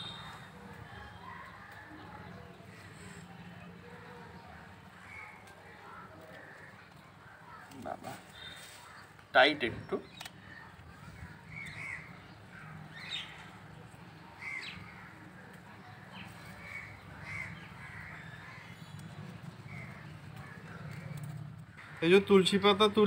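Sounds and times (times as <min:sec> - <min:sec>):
crows cawing: 0:04.0 - 0:09.3, 0:10.4 - 0:13.5, 0:14.4 - 0:22.8.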